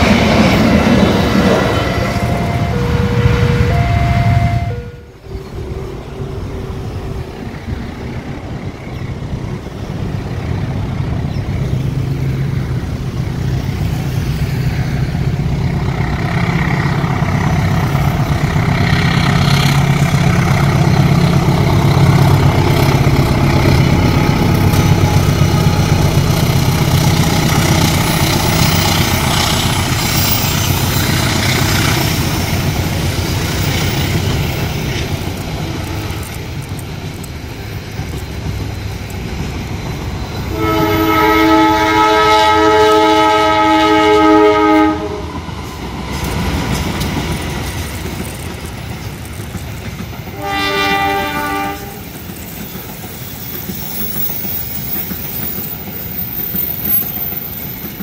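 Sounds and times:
wheel and rail clatter: 0.0s - 3.7s, 5.2s - 40.9s, 45.2s - 50.4s, 51.2s - 58.0s
diesel locomotive engine: 0.0s - 58.0s.

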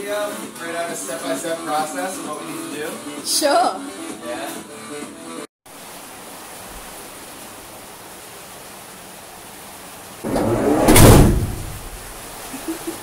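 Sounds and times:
heavy rain on metal: 5.7s - 13.0s
loud rushing noise: 10.2s - 12.2s.

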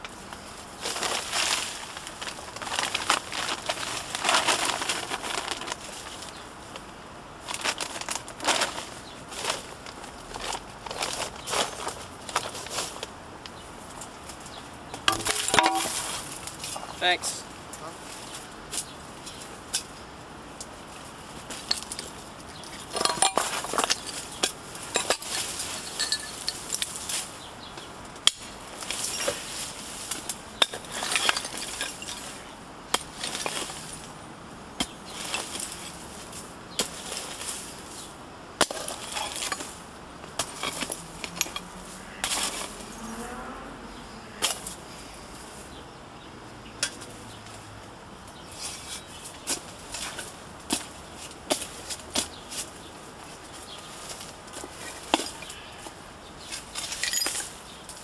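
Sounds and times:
debris clinking and knocking: 15.0s - 16.9s, 22.9s - 26.9s, 30.6s - 32.3s, 56.8s - 57.5s
digging tool scraping rubble: 15.0s - 16.9s, 22.8s - 26.9s, 28.8s - 34.0s, 38.6s - 42.9s, 56.4s - 57.6s.

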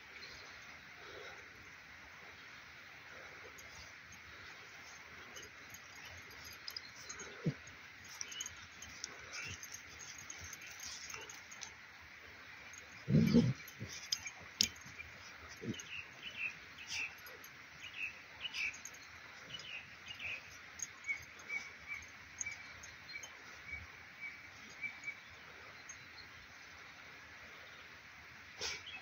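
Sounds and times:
small birds chirping: 2.2s - 28.0s
puppy paws scratching dirt: 3.8s - 11.8s, 12.7s - 18.9s.

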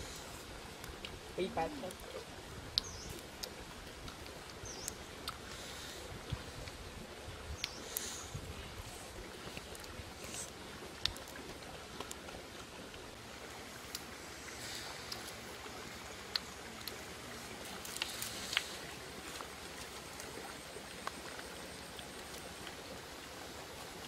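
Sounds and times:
stream flowing over stones: 0.0s - 24.0s.

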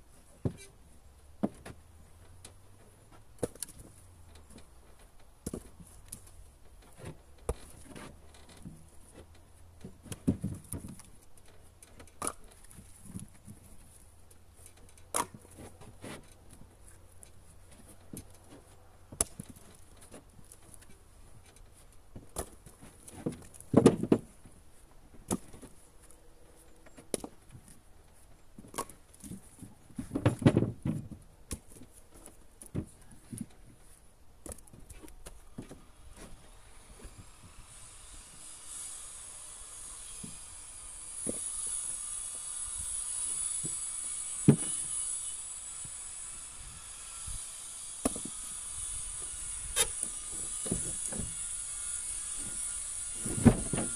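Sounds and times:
firewood knocking and clattering: 30.0s - 31.8s.

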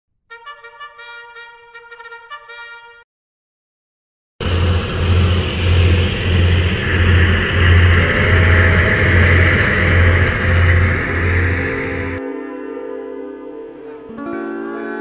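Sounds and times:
motor boat engine pulsing: 4.4s - 12.2s.

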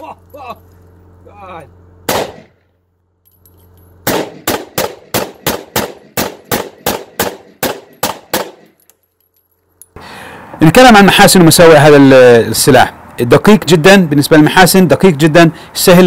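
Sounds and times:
pistol gunshots: 2.1s - 2.7s, 4.0s - 8.8s.

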